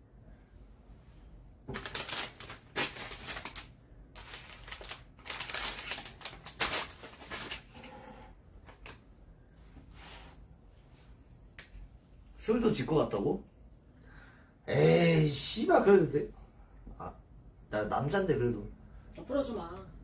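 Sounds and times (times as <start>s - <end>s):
rustling and crinkling: 1.7s - 11.2s.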